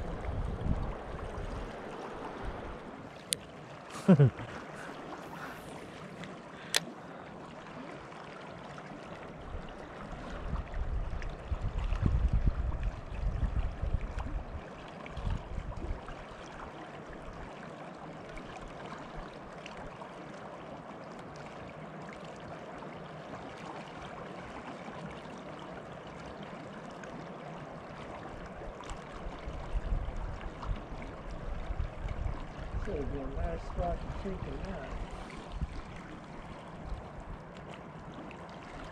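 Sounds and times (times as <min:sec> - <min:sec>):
low rumbles: 0:00.0 - 0:03.1
river water rushing: 0:00.0 - 0:10.4, 0:33.0 - 0:38.9.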